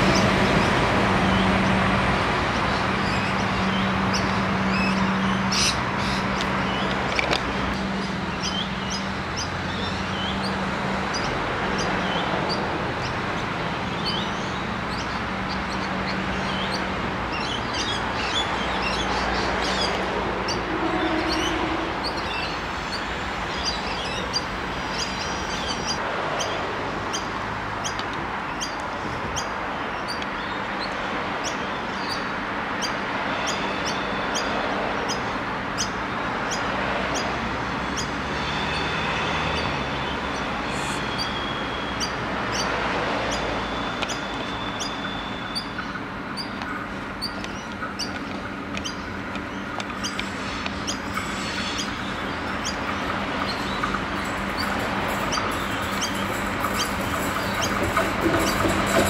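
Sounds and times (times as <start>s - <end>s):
birds chirping: 2.5s - 59.0s
diesel railcar pulling away: 37.4s - 59.0s.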